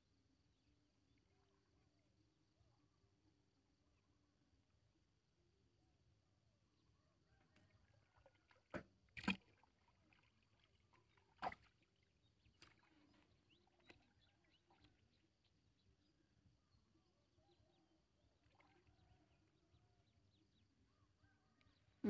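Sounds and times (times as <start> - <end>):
sharp water splashes: 8.7 - 10.2, 11.3 - 11.8.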